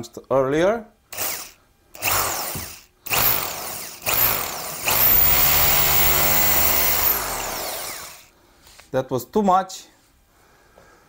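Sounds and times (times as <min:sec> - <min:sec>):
hammer drill boring into wall: 0:01.1 - 0:08.3.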